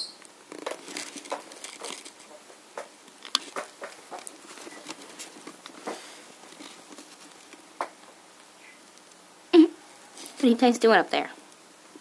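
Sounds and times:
kittens' claws scratching cardboard: 0.5s - 8.0s.

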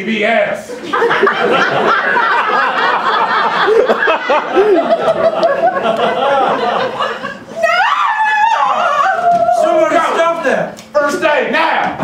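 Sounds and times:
audience laughing: 0.7s - 7.8s.

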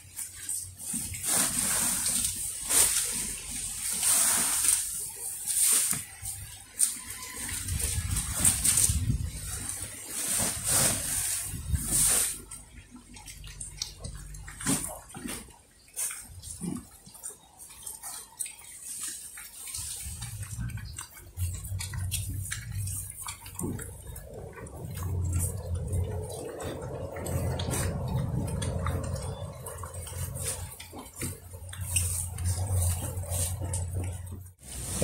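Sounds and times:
pigs chewing and crunching leaves: 0.0s - 35.0s
plastic sack rustling: 0.7s - 12.6s, 34.6s - 35.0s.

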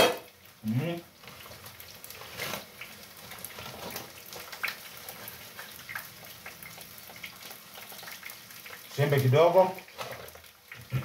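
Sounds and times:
water simmering in a pot: 0.0s - 11.0s
plastic bag crinkling: 1.3s - 4.6s.

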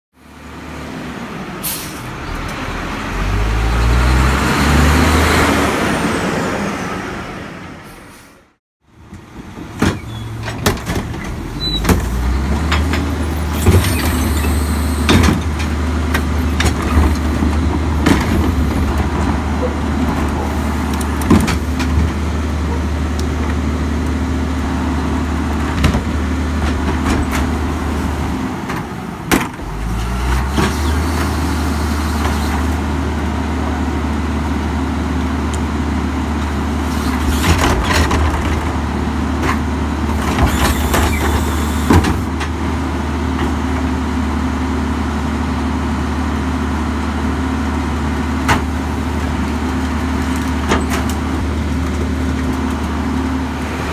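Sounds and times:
garbage truck diesel engine: 0.2s - 53.9s
hydraulic cart tippers: 40.2s - 42.3s.

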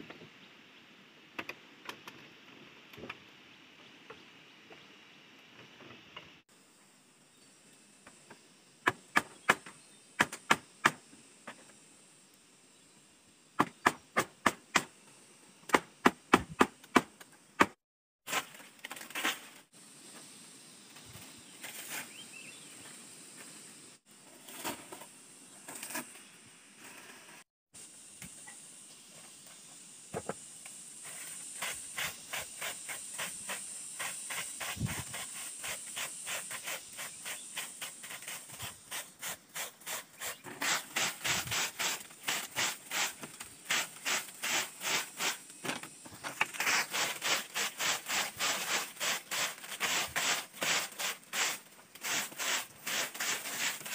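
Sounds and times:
sharp knocks on bamboo: 8.8s - 11.6s, 13.6s - 14.9s, 15.7s - 18.4s
fast scraping strokes: 31.0s - 45.5s, 46.4s - 53.9s
dry thatch rustling: 34.0s - 45.5s, 46.2s - 53.9s.

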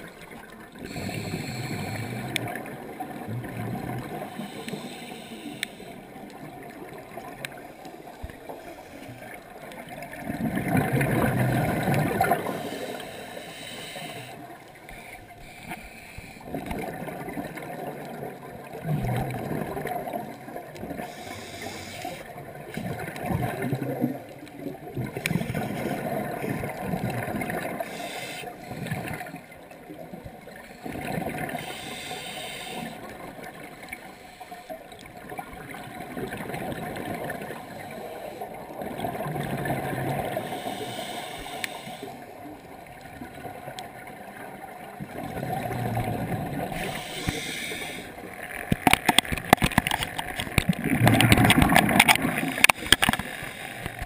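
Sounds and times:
exhaled bubbles gurgling: 0.0s - 15.4s, 16.4s - 54.0s
scuba regulator breathing: 0.8s - 2.7s, 4.0s - 6.3s, 8.2s - 9.4s, 11.9s - 16.7s, 20.9s - 22.4s, 25.1s - 26.5s, 27.6s - 29.4s, 30.6s - 35.0s, 40.0s - 42.5s, 46.0s - 48.4s, 52.0s - 54.0s.

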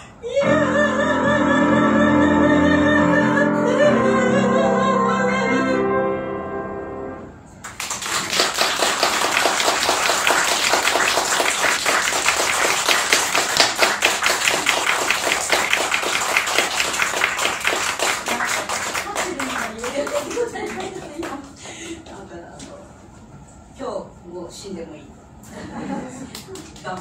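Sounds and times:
woman singing: 0.2s - 5.9s
musical accompaniment: 0.4s - 7.6s
audience applause: 7.6s - 22.0s.

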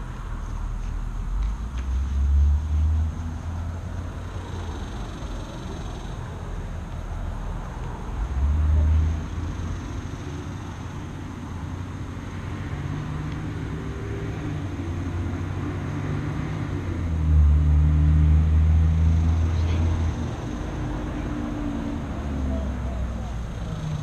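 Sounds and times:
low engine-like hum: 0.0s - 24.0s.

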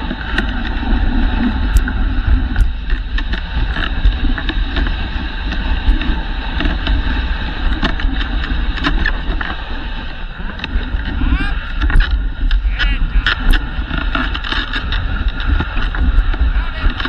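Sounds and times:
sled sliding on snow: 0.0s - 17.0s
sharp clicks and knocks: 11.7s - 17.0s.

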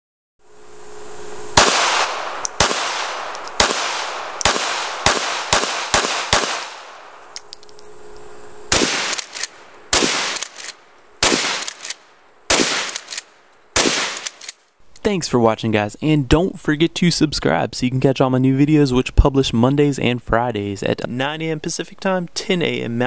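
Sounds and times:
gunshots with long echo: 1.6s - 7.3s, 8.7s - 14.4s.

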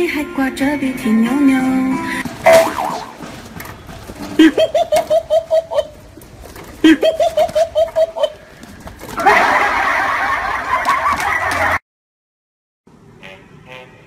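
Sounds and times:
bursts of laughter: 4.4s - 6.0s, 6.8s - 8.4s, 9.2s - 11.8s.

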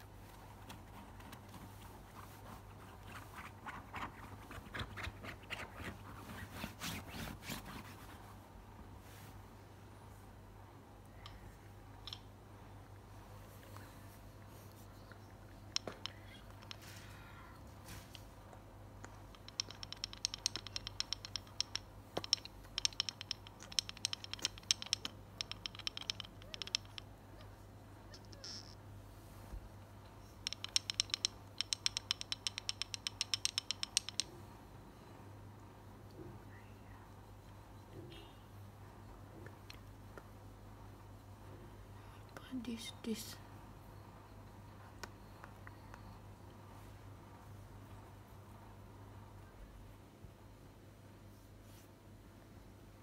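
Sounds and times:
low steady hum: 0.0s - 53.0s
fingers scratching fleece blanket: 0.6s - 8.4s.

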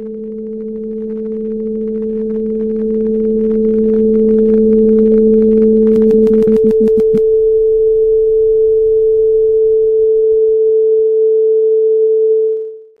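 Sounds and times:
loud steady electronic tone: 0.0s - 13.0s
typing clicks: 5.9s - 7.2s.

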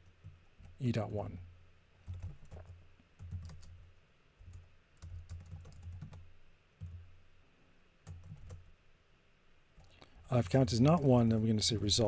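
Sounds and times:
typing on keyboard: 2.0s - 3.8s, 4.4s - 6.2s, 8.1s - 8.7s.

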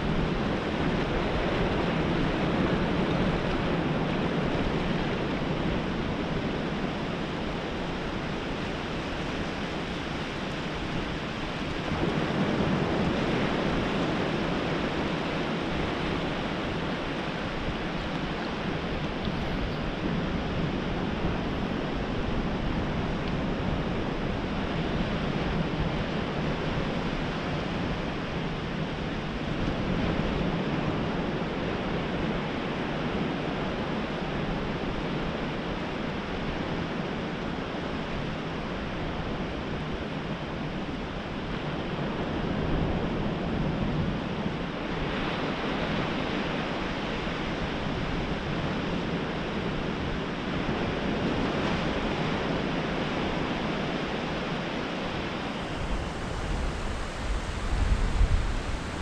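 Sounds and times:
wind buffeting microphone: 0.0s - 59.0s
small waves breaking: 37.5s - 59.0s.

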